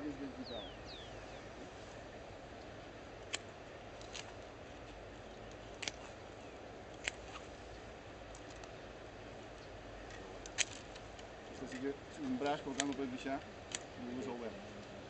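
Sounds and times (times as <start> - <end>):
steady outdoor hiss: 0.0 - 15.0
pruning shears snipping branches: 2.6 - 7.5, 10.0 - 14.4.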